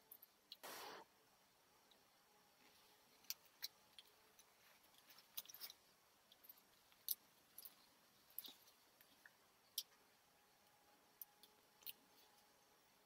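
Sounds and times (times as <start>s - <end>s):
soft fabric rustles: 2.5s - 9.4s.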